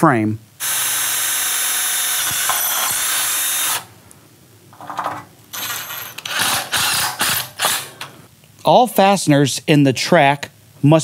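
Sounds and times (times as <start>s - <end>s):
cordless drill whining: 0.6s - 3.9s
drill driving screw: 0.6s - 3.9s, 5.6s - 8.1s.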